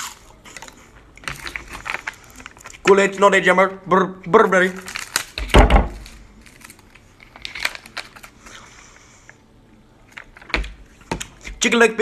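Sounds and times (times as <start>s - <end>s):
foil pouch crinkling: 1.2s - 3.3s, 4.4s - 8.5s.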